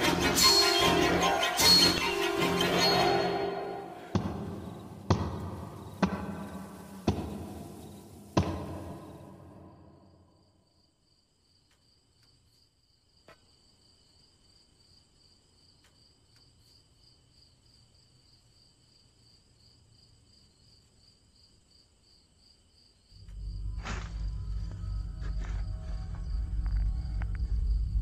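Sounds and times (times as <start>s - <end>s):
crickets chirping: 1.6s - 28.0s
loud low rumble: 23.2s - 28.0s.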